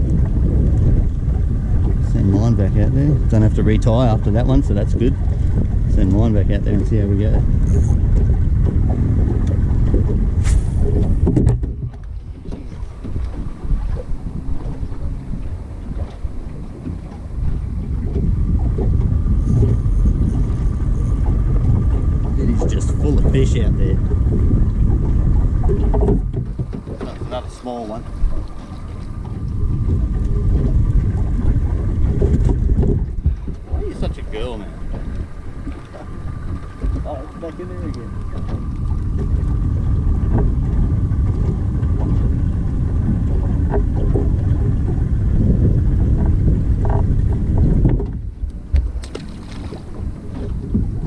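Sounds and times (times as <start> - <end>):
wind buffeting microphone: 0.0 - 51.0
fishing rod swish: 10.4 - 10.9.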